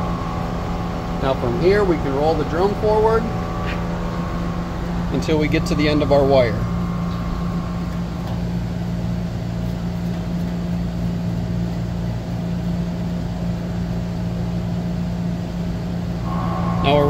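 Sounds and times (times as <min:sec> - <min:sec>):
faint higher tone: 0:00.0 - 0:09.6, 0:16.2 - 0:17.0
machine hum: 0:00.0 - 0:17.0.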